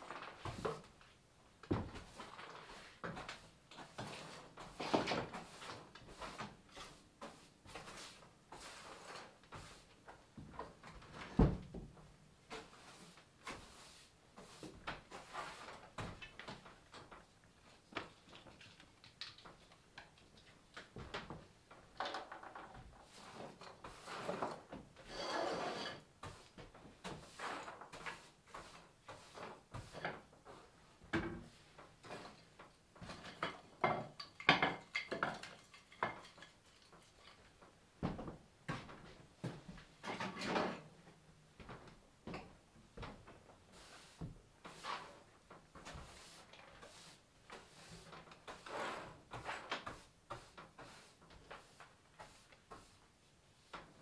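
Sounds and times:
broom sweeping wooden floor: 0.0s - 18.6s, 22.7s - 34.0s, 40.7s - 54.0s.

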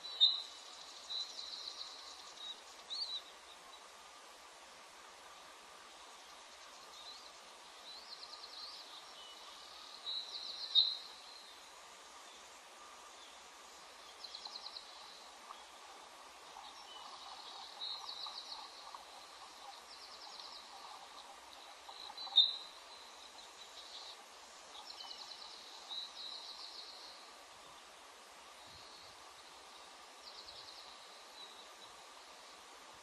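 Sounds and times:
steady outdoor hiss: 0.0s - 33.0s
bird chittering trills: 14.1s - 24.2s.

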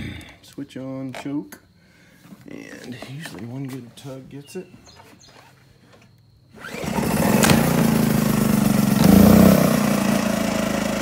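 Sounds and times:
small generator engine pull-started: 6.5s - 11.0s
generator engine running: 6.6s - 11.0s.

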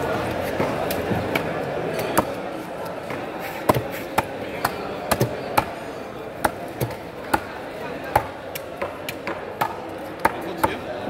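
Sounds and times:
knife chopping on wooden block: 3.1s - 5.8s.

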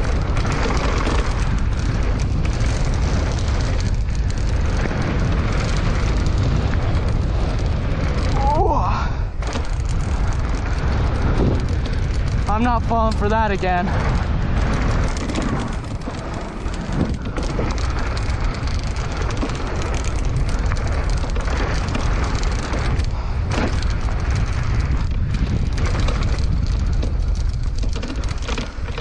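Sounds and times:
bike knocks and rattles: 0.0s - 29.0s
bike tyres rolling on dirt: 0.0s - 29.0s
wind buffeting microphone: 0.0s - 29.0s.

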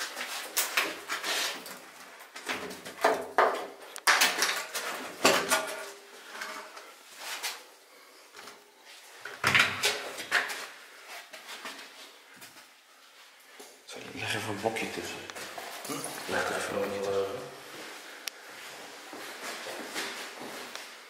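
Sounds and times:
wood knocking and clattering: 2.4s - 5.8s.

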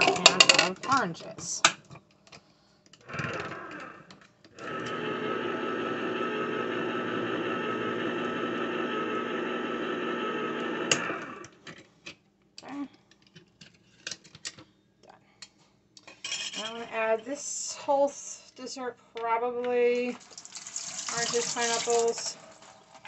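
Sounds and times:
electric can opener motor hum: 3.0s - 11.6s.

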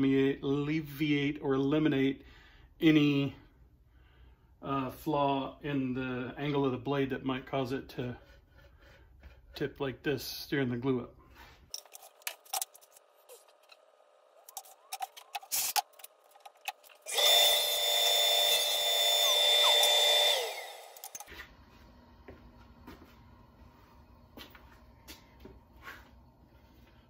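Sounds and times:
boards being handled: 14.4s - 17.1s
table saw motor whine: 16.5s - 21.3s.

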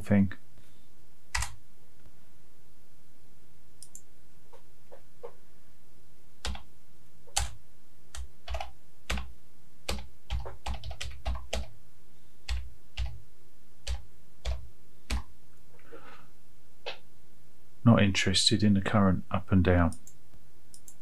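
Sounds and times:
faint steady hum: 0.0s - 21.0s
typing on keyboard: 1.4s - 1.6s, 6.4s - 6.7s, 7.3s - 7.6s, 8.2s - 9.3s, 9.9s - 11.7s, 12.5s - 13.2s, 13.8s - 15.3s.

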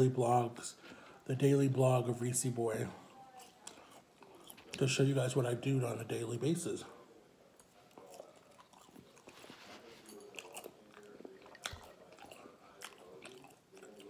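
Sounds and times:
person chewing fries: 3.3s - 5.0s, 7.5s - 14.0s.

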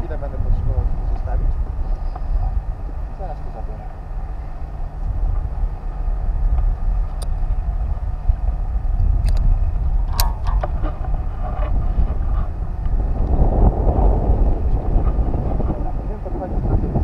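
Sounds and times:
wind buffeting microphone: 0.0s - 17.0s
sharp clicks: 9.2s - 9.5s.

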